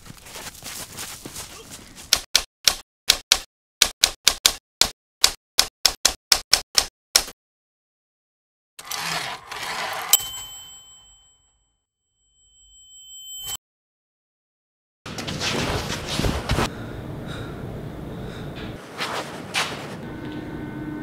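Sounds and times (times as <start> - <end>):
typewriter bell ding: 10.1 - 11.6.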